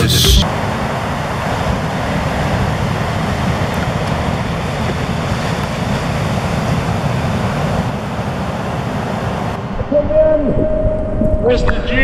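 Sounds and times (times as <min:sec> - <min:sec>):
waves breaking: 0:00.4 - 0:10.7
wind on microphone: 0:09.5 - 0:12.0.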